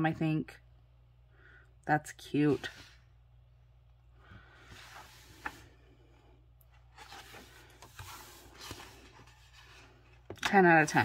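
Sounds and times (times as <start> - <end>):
book pages turning: 4.6 - 5.8, 6.6 - 11.0.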